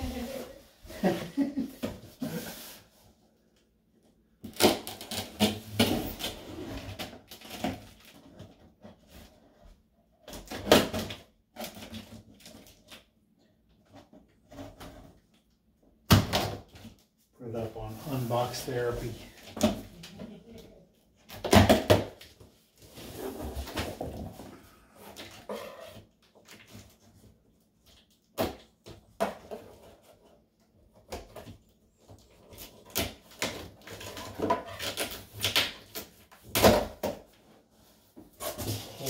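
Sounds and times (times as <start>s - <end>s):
packing tape ripping: 4.4s - 6.4s.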